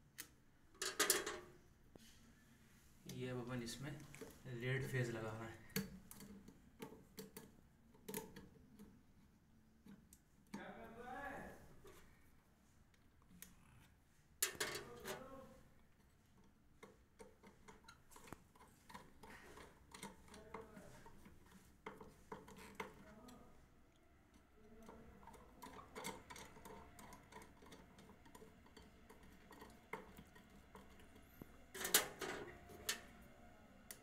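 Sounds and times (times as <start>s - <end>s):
screwdriver clicking and scraping: 16.4s - 23.1s.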